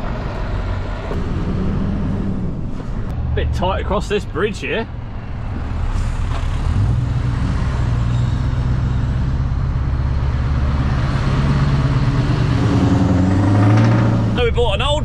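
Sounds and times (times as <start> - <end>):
road noise: 0.0 - 15.0
truck engine drone: 0.0 - 15.0.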